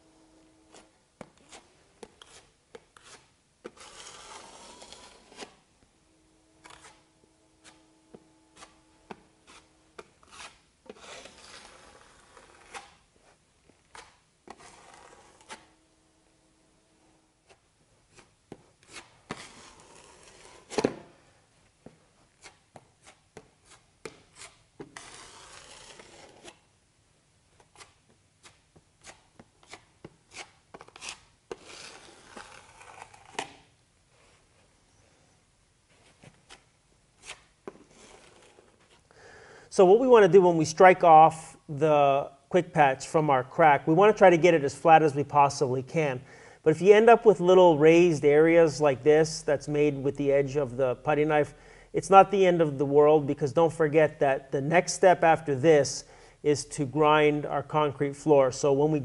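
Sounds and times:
putty knife scraping concrete: 0.7 - 5.7, 6.6 - 7.9, 8.5 - 13.1, 13.8 - 15.8, 17.4 - 21.0, 22.4 - 26.6, 27.6 - 33.7, 36.4 - 38.8.

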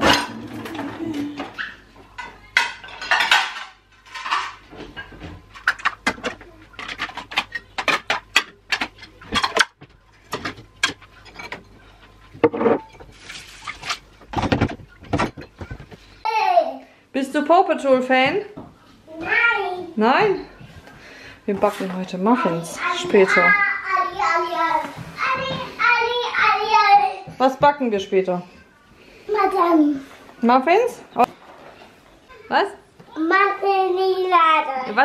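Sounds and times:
dishes clinking: 0.0 - 16.0.

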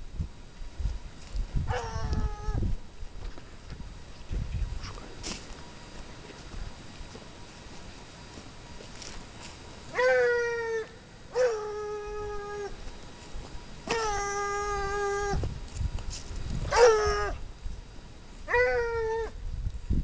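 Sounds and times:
hounds baying: 9.9 - 12.9, 16.7 - 17.4.

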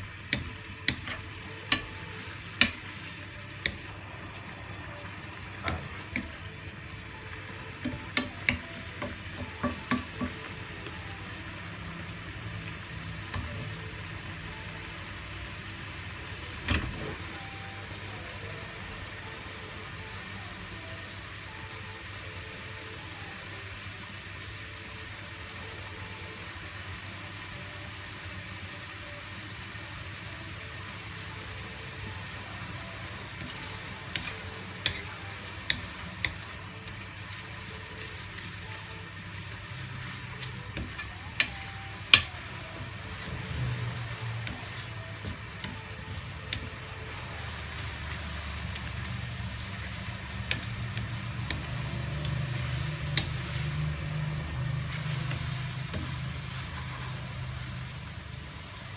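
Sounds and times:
food sizzling in a frying pan: 0.0 - 58.9.

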